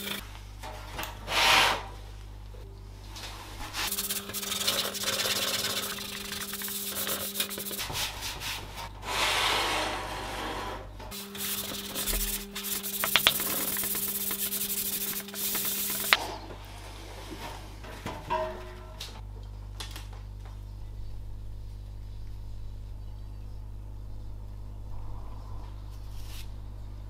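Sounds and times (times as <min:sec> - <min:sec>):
cloth wiping plastic case: 0:11.5 - 0:16.2.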